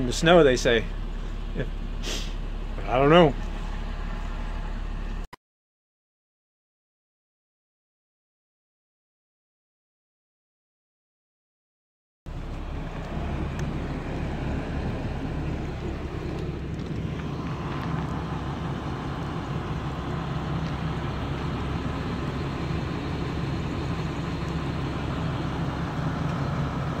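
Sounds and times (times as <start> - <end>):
engine low rumble: 0.0 - 5.3, 12.3 - 27.0.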